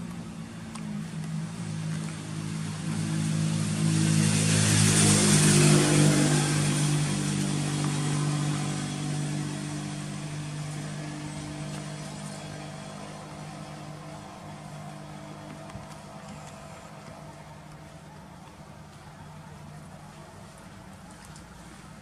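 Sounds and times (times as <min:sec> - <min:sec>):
vehicle engine passing by: 0:00.0 - 0:18.4.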